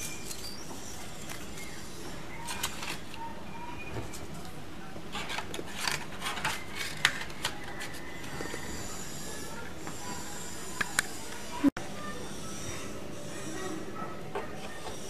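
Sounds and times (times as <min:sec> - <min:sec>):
toy banknotes clicking and scraping: 0:00.0 - 0:03.2, 0:05.1 - 0:11.4.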